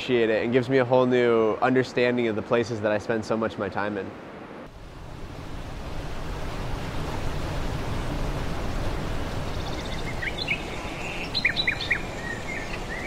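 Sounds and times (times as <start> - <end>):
river whitewater rushing: 4.3 - 13.0
small birds chirping: 9.2 - 13.0.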